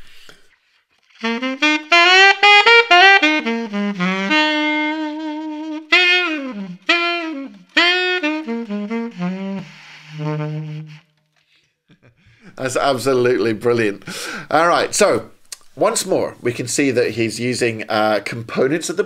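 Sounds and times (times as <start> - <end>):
alto saxophone solo: 1.0 - 11.4.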